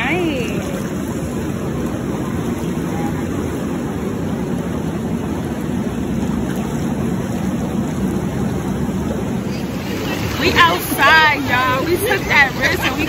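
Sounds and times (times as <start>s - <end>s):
spa jets bubbling water: 0.0s - 13.0s.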